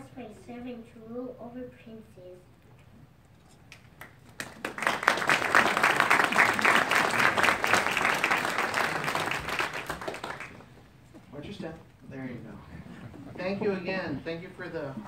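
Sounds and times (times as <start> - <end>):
audience applauding: 3.7 - 10.8.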